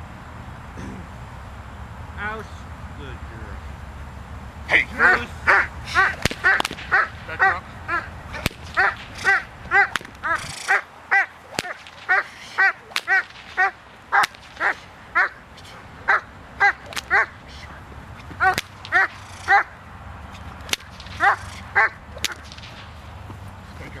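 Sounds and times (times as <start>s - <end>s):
sharp cracks: 5.5s - 7.6s, 8.3s - 17.5s, 18.2s - 23.2s
dog barking: 16.1s - 17.4s, 21.2s - 22.0s.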